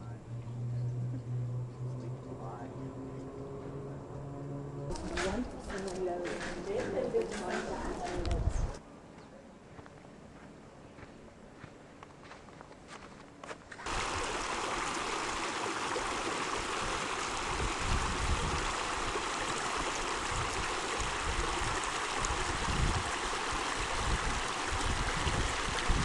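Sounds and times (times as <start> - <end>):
creek running over rocks: 4.9 - 8.4, 13.9 - 26.0.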